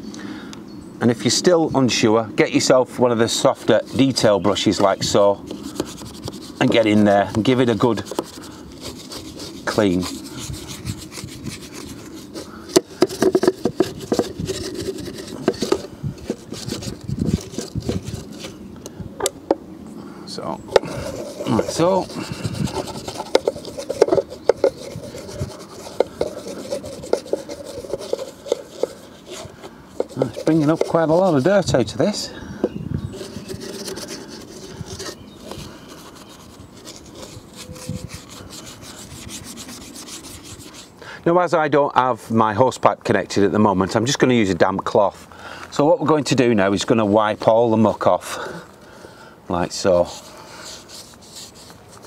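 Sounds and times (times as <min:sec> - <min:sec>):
brush scrubbing plastic: 0:03.2 - 0:18.6, 0:20.7 - 0:32.2, 0:33.1 - 0:41.0, 0:49.6 - 0:52.0.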